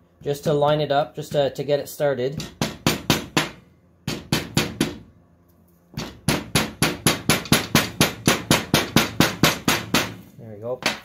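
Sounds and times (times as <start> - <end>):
hammer tapping on metal: 6.0 - 10.2.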